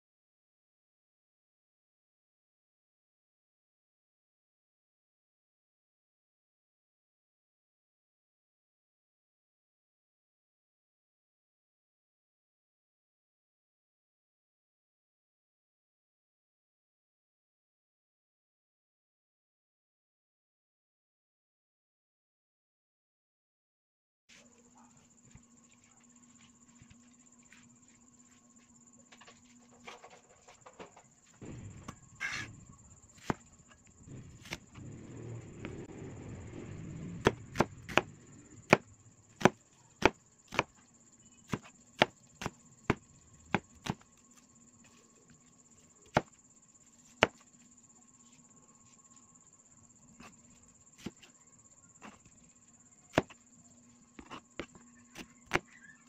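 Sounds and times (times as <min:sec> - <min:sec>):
cleaver chopping on cutting board: 0:33.2 - 0:33.4, 0:34.4 - 0:34.6, 0:37.2 - 0:38.1, 0:39.4 - 0:40.7, 0:41.5 - 0:44.0, 0:46.1 - 0:46.4, 0:47.2 - 0:47.4, 0:53.1 - 0:53.4.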